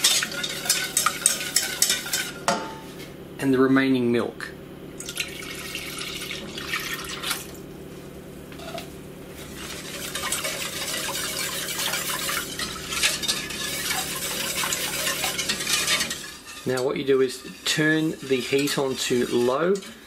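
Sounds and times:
whisk clicking and scraping pan: 0.0s - 2.5s, 8.6s - 20.0s.

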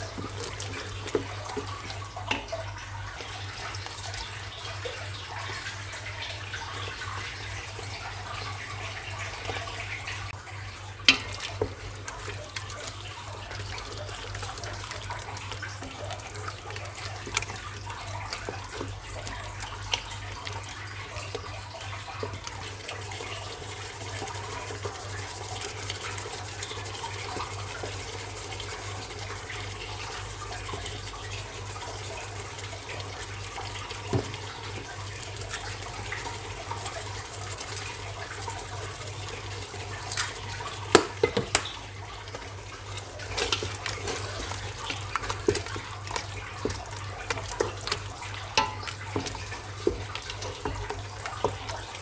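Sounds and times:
utensils clanking on cookware: 48.5s - 50.0s.

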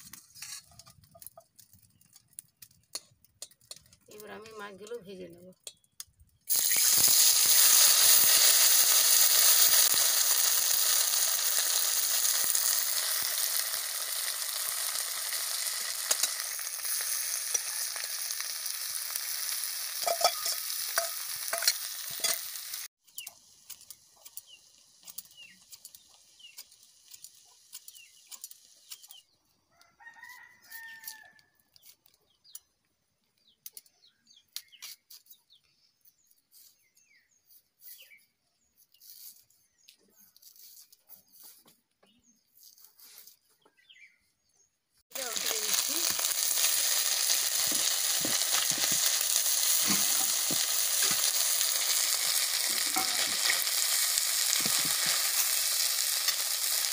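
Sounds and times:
fish sizzling in hot oil: 6.5s - 29.2s, 45.0s - 56.9s
rooster crowing: 17.4s - 18.3s, 29.7s - 31.6s
spatula clinking against pan: 20.0s - 22.4s.

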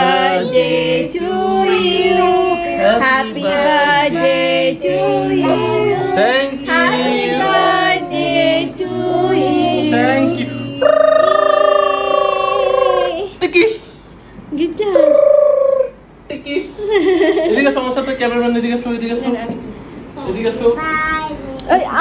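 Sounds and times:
song with singing voices: 0.0s - 11.4s.

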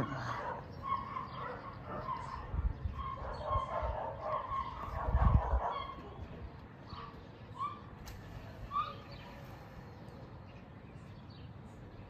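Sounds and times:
dog barking and yapping: 0.3s - 6.3s.

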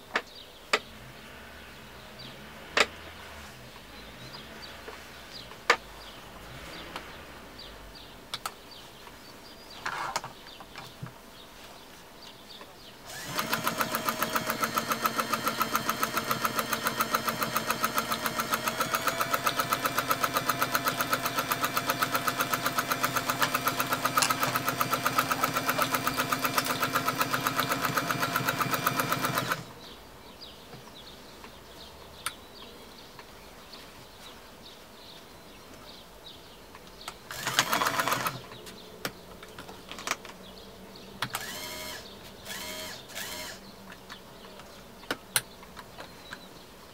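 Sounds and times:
sewing machine stitching: 13.1s - 29.7s, 37.3s - 38.5s, 41.4s - 43.6s.

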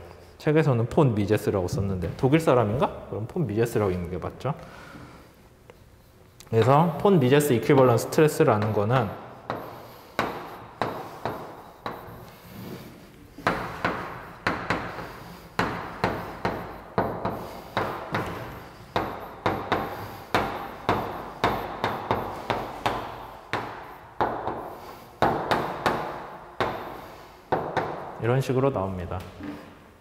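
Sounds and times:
chalk tapping on blackboard: 8.5s - 28.1s.

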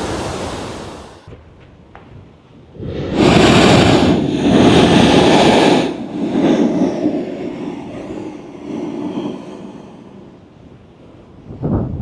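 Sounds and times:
blowhole blasting air and spray: 0.0s - 1.3s, 2.8s - 11.0s.

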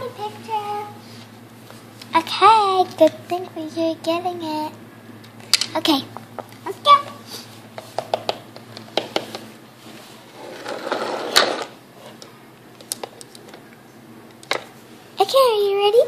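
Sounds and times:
rustling scraping noise: 9.8s - 12.2s.

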